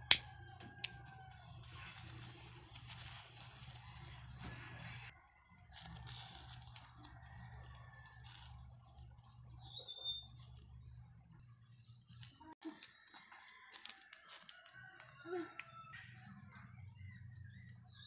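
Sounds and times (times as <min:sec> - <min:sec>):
plastic film crinkling: 0:00.0 - 0:15.1.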